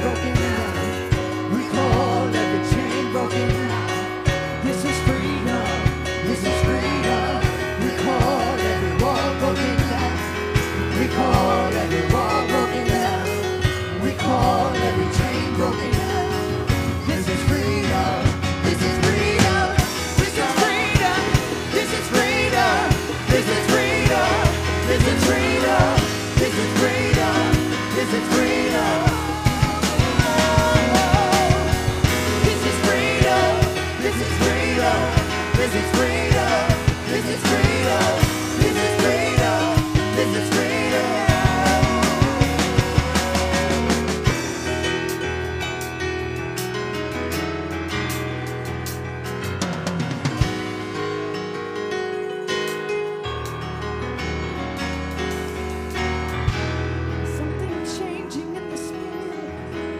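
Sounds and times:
person singing: 0:00.0 - 0:44.3
steady drum beat: 0:00.0 - 0:45.2, 0:49.6 - 0:50.8
sustained bass: 0:00.0 - 0:51.1
worship band playing: 0:00.0 - 0:59.9.

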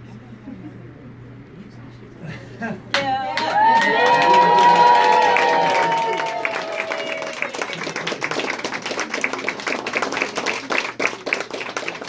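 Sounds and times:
group clapping: 0:02.9 - 0:12.0
people cheering: 0:03.0 - 0:12.0.

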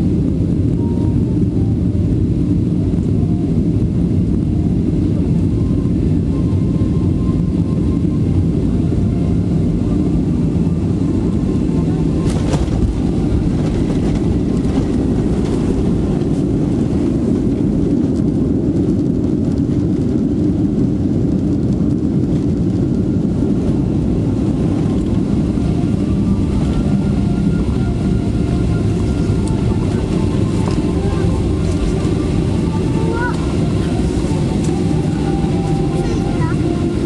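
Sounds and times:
faint whine: 0:00.0 - 0:37.0
jet engine and runway rumble: 0:00.0 - 0:37.0.

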